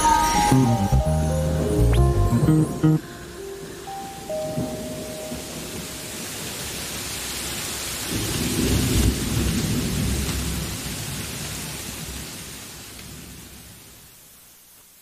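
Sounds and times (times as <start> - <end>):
steady rain: 2.9 - 15.0
thunder rolling: 8.0 - 11.5.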